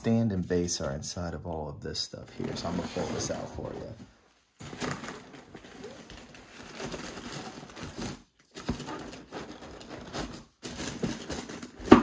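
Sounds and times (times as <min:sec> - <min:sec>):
packaging rustling in cardboard box: 0:04.6 - 0:12.0.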